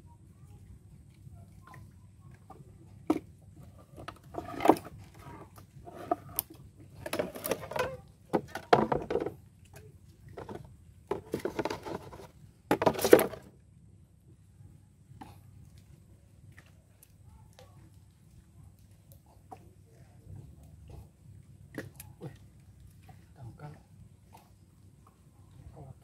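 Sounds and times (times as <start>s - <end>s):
knocking and clattering in wooden boat: 7.0s - 9.4s.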